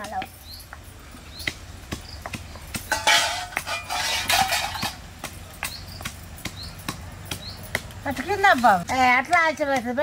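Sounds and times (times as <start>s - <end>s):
metal pots and utensils clinking: 2.9s - 5.1s.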